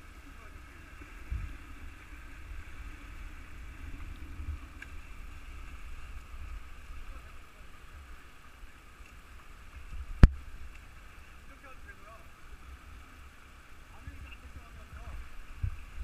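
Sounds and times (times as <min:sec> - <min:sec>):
river water over rocks: 0:00.0 - 0:16.0
wind buffeting microphone: 0:14.8 - 0:16.0.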